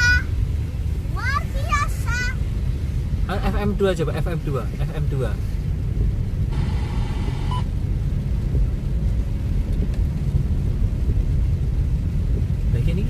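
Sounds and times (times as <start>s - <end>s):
car driving on wet road: 0.0s - 13.0s
short beep: 7.3s - 7.7s.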